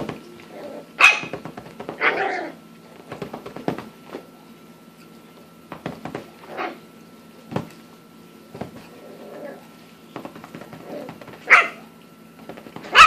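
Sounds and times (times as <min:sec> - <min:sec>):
puppy barking: 0:00.6 - 0:02.6, 0:10.9 - 0:11.9
paws scuffling on fabric: 0:08.6 - 0:11.6.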